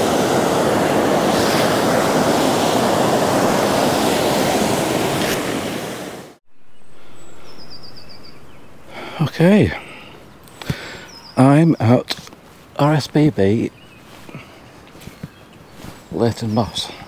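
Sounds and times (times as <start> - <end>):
stream rushing over rocks: 0.0 - 6.4
faint high chirp: 6.5 - 12.0.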